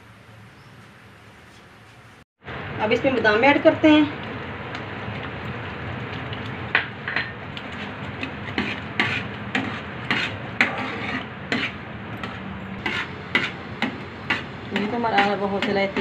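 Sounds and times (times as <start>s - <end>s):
metal spatula scraping pan: 7.1s - 16.0s.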